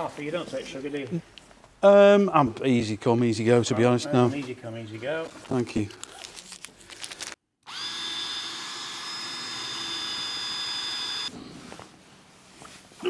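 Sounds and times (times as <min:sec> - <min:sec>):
cordless drill drilling metal: 0:07.6 - 0:11.3.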